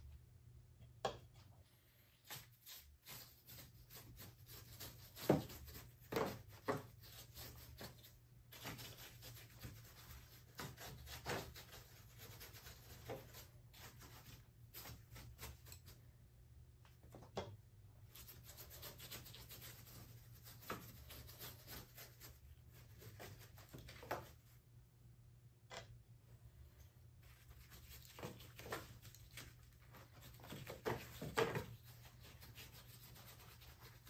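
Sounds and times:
paint brush scrubbing rough plaster: 2.0s - 16.1s, 18.0s - 24.6s, 27.2s - 34.0s.

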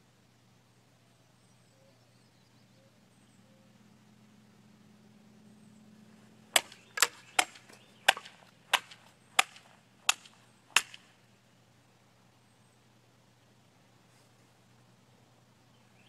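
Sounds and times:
sword cutting bamboo cracks: 6.6s - 11.1s.

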